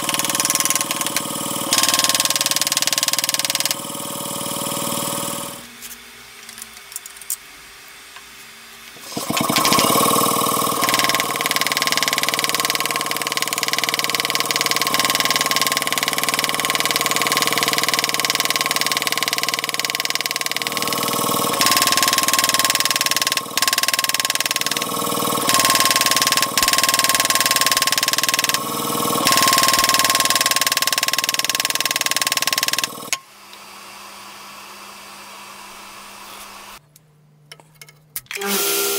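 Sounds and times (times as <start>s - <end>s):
power tool whining: 0.0s - 5.6s, 9.0s - 33.2s.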